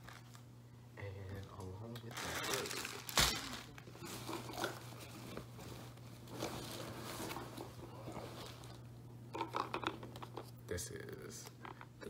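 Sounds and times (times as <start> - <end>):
steady low hum: 0.0 - 12.0
plastic bag rustling: 2.1 - 8.8.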